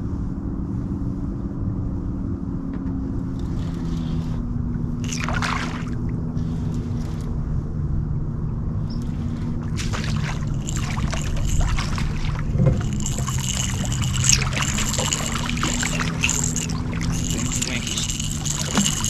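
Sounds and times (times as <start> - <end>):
steady low hum: 0.0 - 19.0
fish splashing at surface: 5.0 - 6.0, 9.7 - 19.0.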